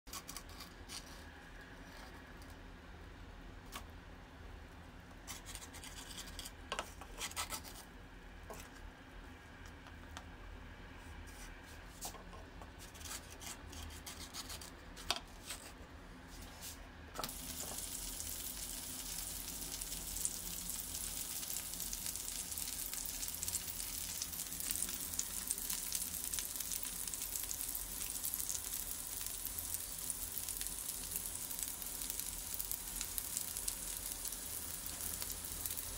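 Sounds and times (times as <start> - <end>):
food sizzling in hot oil: 17.2 - 35.9.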